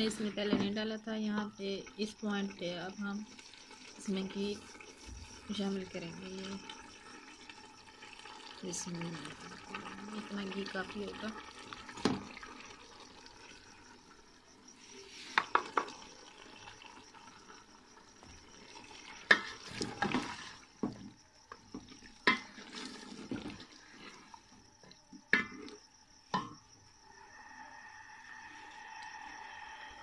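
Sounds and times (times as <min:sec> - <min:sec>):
faint frying hiss: 0:00.0 - 0:30.0
ladle stirring in metal pot: 0:18.7 - 0:20.7, 0:21.6 - 0:24.5.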